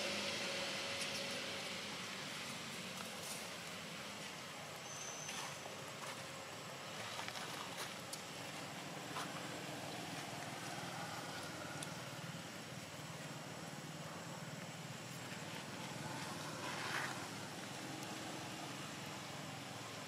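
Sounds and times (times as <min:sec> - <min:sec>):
low hum and hiss: 0:00.0 - 0:20.0
faint rustles: 0:15.1 - 0:18.2.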